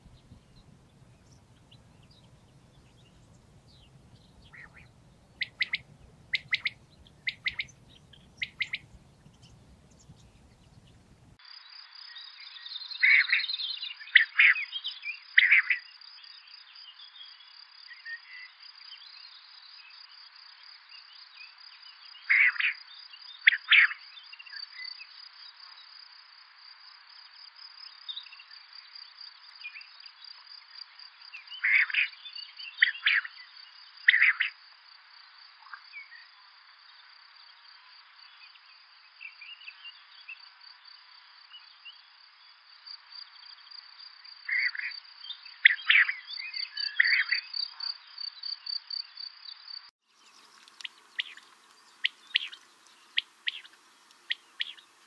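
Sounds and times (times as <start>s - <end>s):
quail calling: 3.2s - 9.8s, 50.8s - 54.9s.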